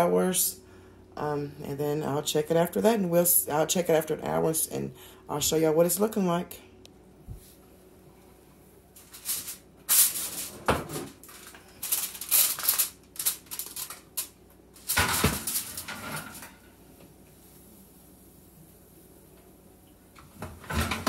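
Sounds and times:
aluminium foil crinkling: 9.0 - 16.6.

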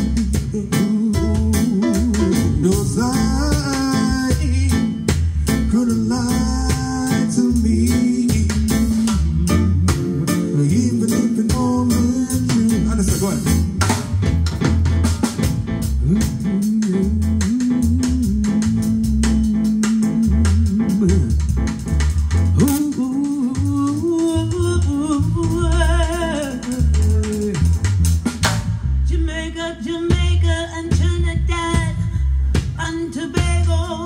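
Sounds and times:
soul band playing: 0.0 - 34.0
woman singing: 22.6 - 27.7, 29.1 - 34.0.

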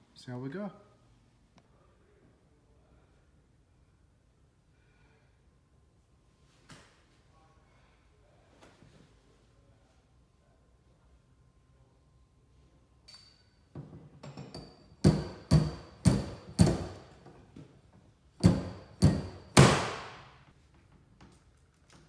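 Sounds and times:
dent puller knocks: 14.5 - 17.0, 18.4 - 20.0.

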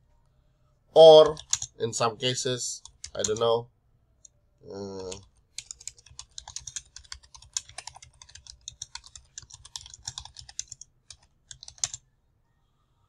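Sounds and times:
typing on computer keyboard: 1.3 - 1.7, 2.8 - 3.4, 5.0 - 12.0.

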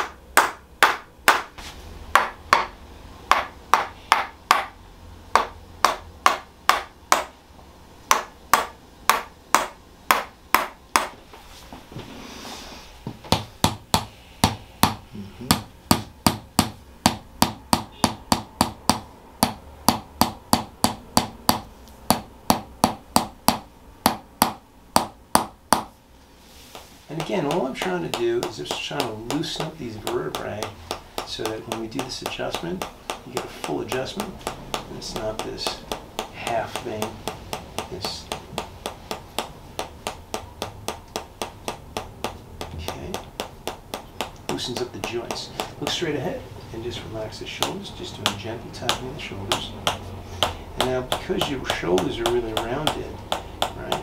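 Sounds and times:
mallet tapping wooden wedge: 0.0 - 1.5, 2.1 - 7.4, 8.1 - 11.2, 13.2 - 26.0, 26.7 - 46.2, 47.4 - 54.0.

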